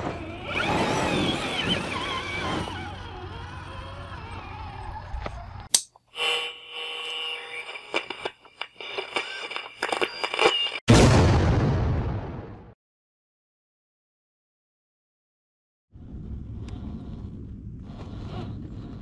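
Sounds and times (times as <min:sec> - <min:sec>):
rc car electric motor whining: 0:00.0 - 0:08.3.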